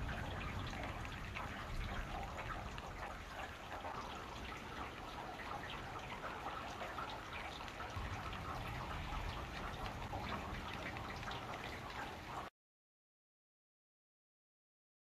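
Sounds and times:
distant thunder rumble: 0:00.0 - 0:06.3, 0:08.0 - 0:12.4
rain falling and dripping: 0:00.0 - 0:12.5.

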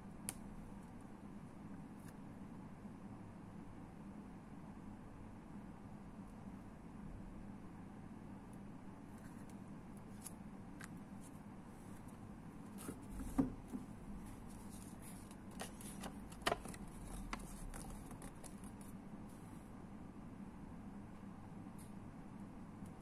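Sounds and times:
steady low hum: 0:00.0 - 0:23.0
paper rustling: 0:14.2 - 0:19.0.

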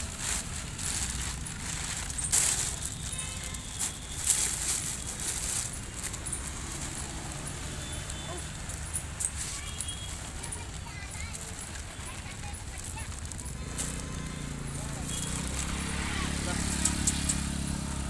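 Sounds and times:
dry kibble pouring onto newspaper: 0:00.0 - 0:08.5
sack and paper crinkling: 0:00.0 - 0:16.8.

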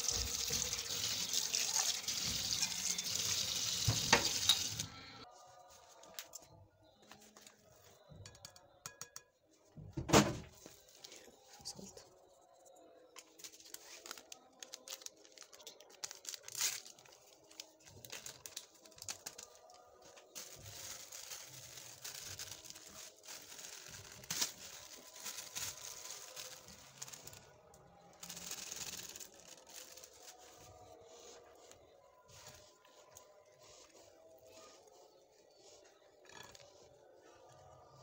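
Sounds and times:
plastic packet crinkling: 0:13.3 - 0:19.8, 0:20.4 - 0:30.5.

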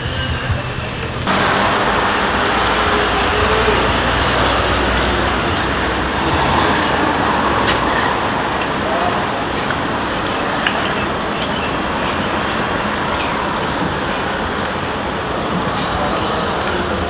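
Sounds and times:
faint voices: 0:00.0 - 0:17.0
low hum: 0:01.0 - 0:06.4.

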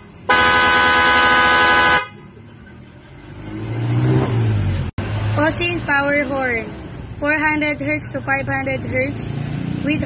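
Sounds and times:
electric horns blast: 0:00.3 - 0:02.2.

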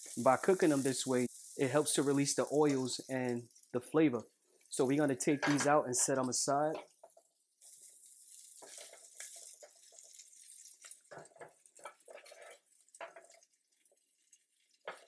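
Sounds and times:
sausage sizzling in oil: 0:00.0 - 0:15.0
spatula scraping pan: 0:07.0 - 0:15.0.

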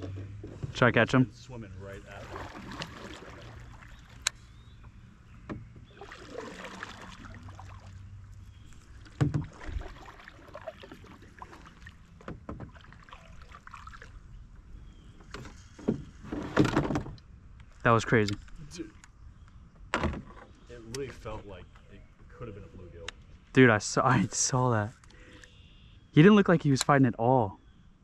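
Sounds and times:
water movement: 0:01.5 - 0:16.8
knocks against boat hull: 0:09.2 - 0:09.8.

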